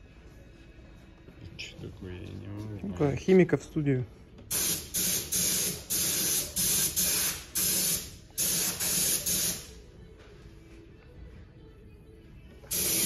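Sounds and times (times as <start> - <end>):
hissing spray bursts: 4.5 - 9.7, 12.7 - 13.0.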